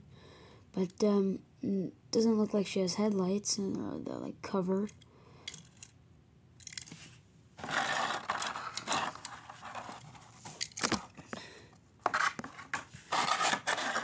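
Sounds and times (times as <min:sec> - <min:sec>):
plastic packaging crinkling: 0:07.6 - 0:11.1, 0:13.1 - 0:14.0.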